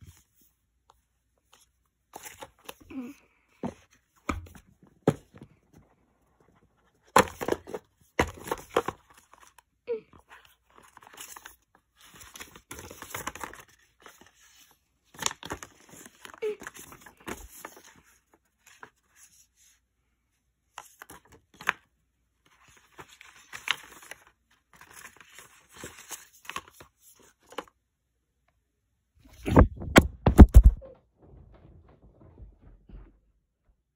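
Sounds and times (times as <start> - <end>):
paper rustling and crinkling: 1.4 - 2.8, 10.2 - 19.8, 20.7 - 27.7.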